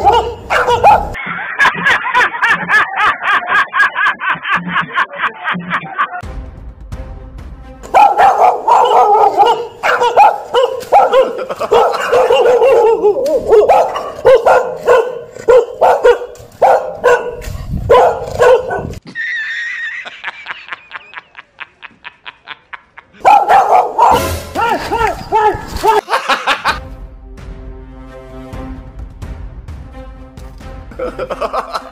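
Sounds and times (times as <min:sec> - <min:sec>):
dog barking rapidly: 0:00.0 - 0:01.2, 0:07.9 - 0:19.0, 0:23.2 - 0:24.3.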